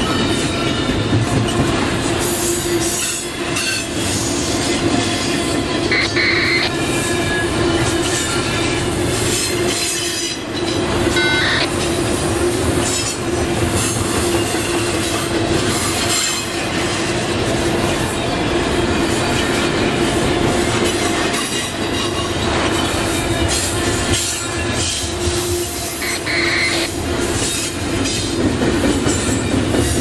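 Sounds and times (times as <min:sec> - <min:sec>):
rail clicks: 0:00.0 - 0:30.0
steel wheels grinding on rail: 0:00.0 - 0:30.0
high wheel squeal: 0:05.3 - 0:08.7, 0:11.1 - 0:11.8, 0:24.5 - 0:27.6.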